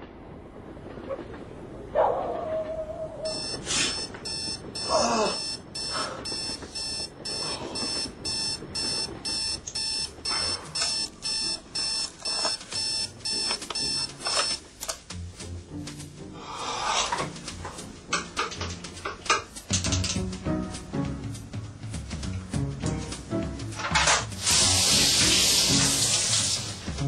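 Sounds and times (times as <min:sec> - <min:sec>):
alarm clock beeping: 0:03.3 - 0:14.6.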